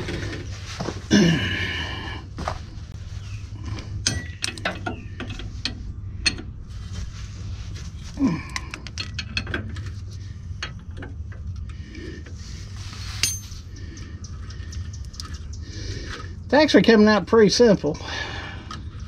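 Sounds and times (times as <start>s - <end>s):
metal clinks: 13.2s - 13.8s.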